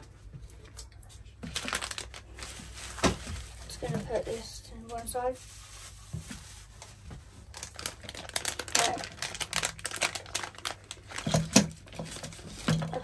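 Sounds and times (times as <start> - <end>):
plastic packet crinkling: 1.4 - 3.8, 5.4 - 13.0.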